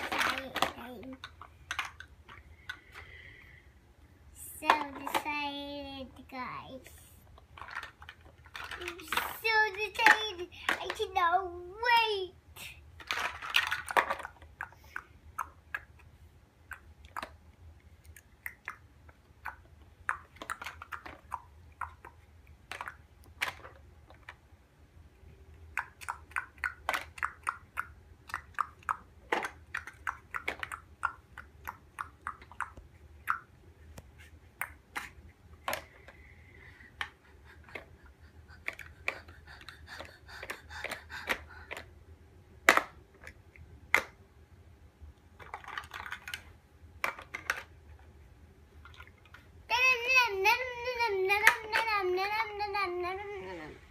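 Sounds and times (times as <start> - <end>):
plastic building blocks clicking: 0.0 - 3.1, 7.4 - 11.5, 13.0 - 16.1, 18.0 - 24.4, 25.8 - 33.5, 36.9 - 41.9, 42.6 - 44.2, 45.4 - 48.0, 48.8 - 52.8.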